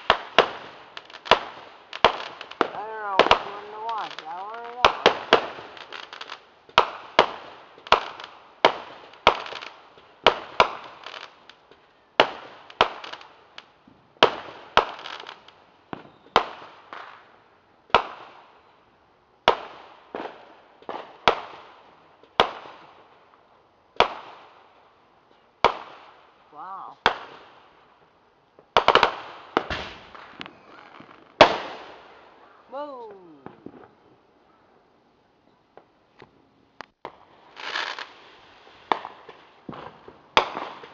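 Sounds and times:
firework shells bursting: 0.0s - 11.4s, 28.7s - 32.2s.

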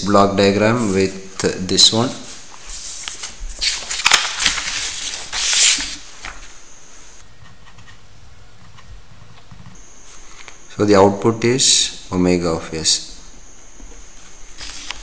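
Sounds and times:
paper rustling and sliding: 2.2s - 7.2s, 14.2s - 15.0s.

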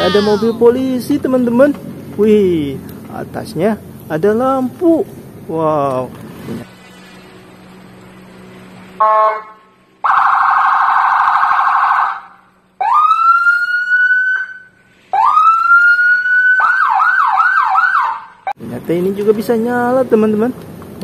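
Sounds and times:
police siren: 9.0s - 18.6s.

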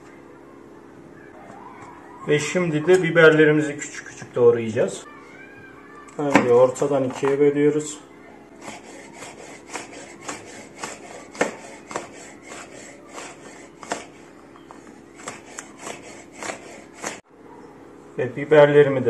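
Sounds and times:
knife slicing on wooden board: 8.6s - 14.2s.

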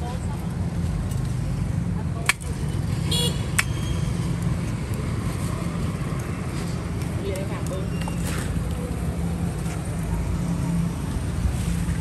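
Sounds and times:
vehicle engine rumbling: 0.0s - 12.0s
car horn toot: 3.1s - 3.5s.

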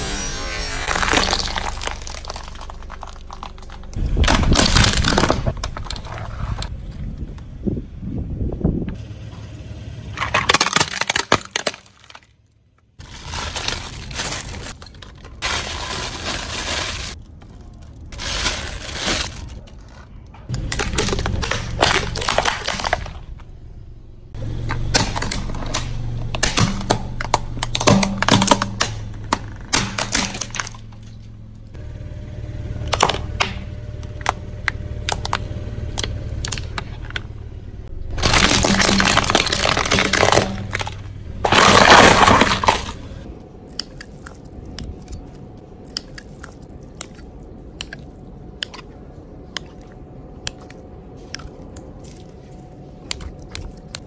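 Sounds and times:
low steady hum: 0.0s - 54.0s
plastic cracking and crunching: 0.9s - 6.7s, 10.2s - 23.5s, 24.7s - 31.2s, 38.1s - 54.0s.

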